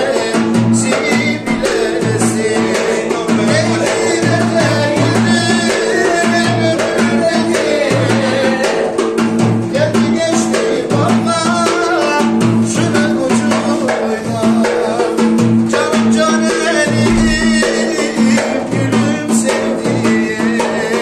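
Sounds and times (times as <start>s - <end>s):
man singing into microphone: 0.0s - 9.0s, 9.6s - 21.0s
drum beats: 0.7s - 5.5s, 16.9s - 19.5s
loud amplified music: 17.0s - 18.7s.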